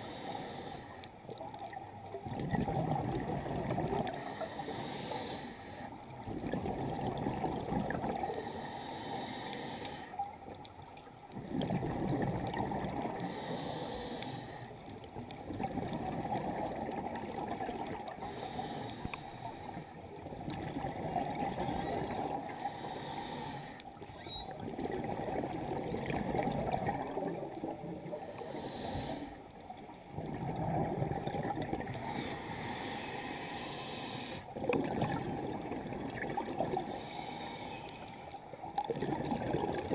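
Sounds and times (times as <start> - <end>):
scuba regulator bubbling exhalations: 2.2 - 5.3, 6.3 - 8.5, 11.4 - 14.0, 15.4 - 18.9, 20.3 - 23.5, 24.2 - 29.3, 30.1 - 37.6, 38.7 - 39.9.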